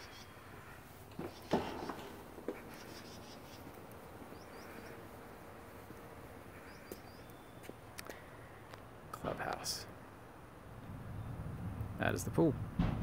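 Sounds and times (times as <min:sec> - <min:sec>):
bird chirps: 0:00.0 - 0:08.2.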